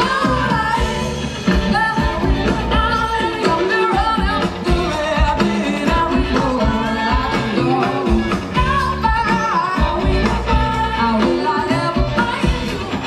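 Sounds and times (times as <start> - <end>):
live band playing: 0.0 - 13.0
woman singing: 0.0 - 13.0.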